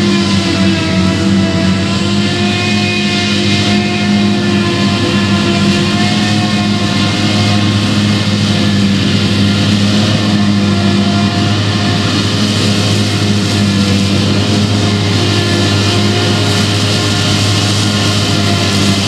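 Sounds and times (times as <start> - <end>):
deep engine drone: 0.0 - 19.0.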